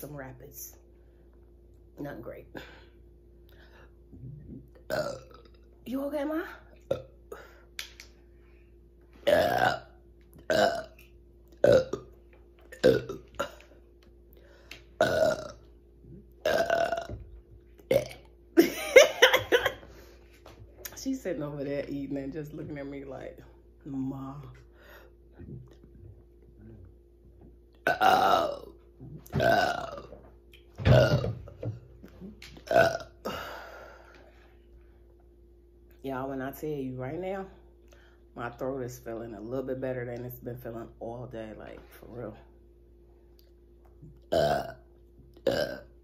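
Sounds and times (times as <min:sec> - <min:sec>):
woman burping: 0:04.5 - 0:05.6, 0:06.8 - 0:07.6, 0:09.2 - 0:11.0, 0:11.6 - 0:12.0, 0:12.7 - 0:13.8, 0:15.0 - 0:15.6, 0:16.4 - 0:17.2, 0:17.9 - 0:19.9, 0:27.8 - 0:30.2, 0:30.9 - 0:31.5, 0:32.6 - 0:33.8, 0:44.3 - 0:44.8, 0:45.4 - 0:45.9.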